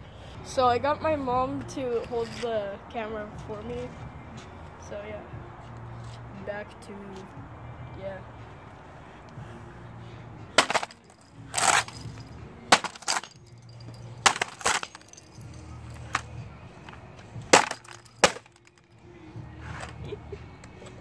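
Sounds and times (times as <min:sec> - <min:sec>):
plastic case breaking: 0:10.6 - 0:15.3, 0:17.5 - 0:18.9.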